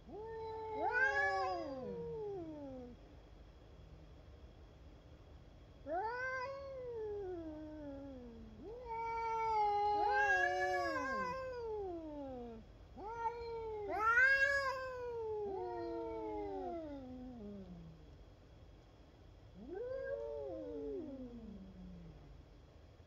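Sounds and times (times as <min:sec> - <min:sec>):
cats caterwauling: 0:00.0 - 0:03.0, 0:05.9 - 0:18.0, 0:19.6 - 0:22.2.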